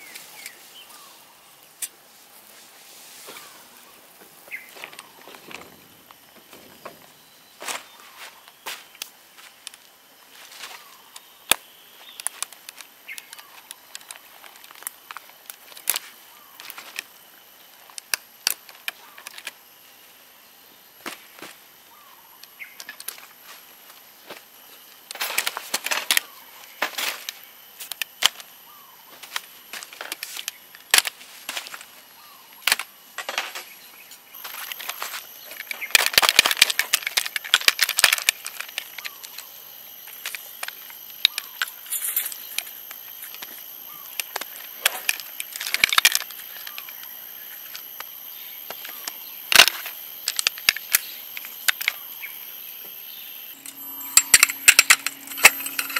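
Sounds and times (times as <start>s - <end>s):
metal frame clicks and clatter: 53.6s - 55.9s.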